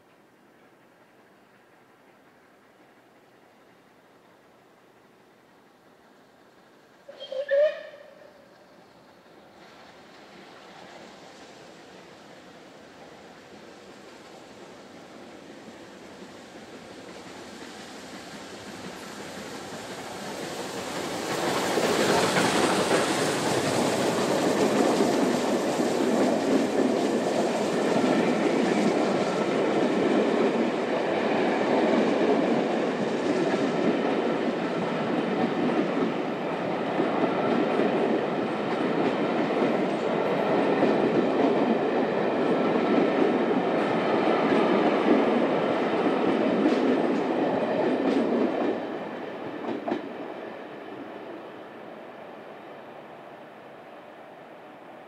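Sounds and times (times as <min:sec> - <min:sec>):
steam train passing: 0:00.0 - 0:55.0
wheels clicking over rail joints: 0:16.7 - 0:31.0.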